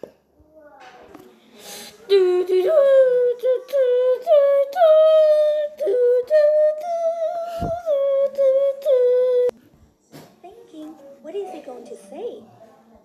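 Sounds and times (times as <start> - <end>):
person singing wordless tune: 1.9 - 9.6.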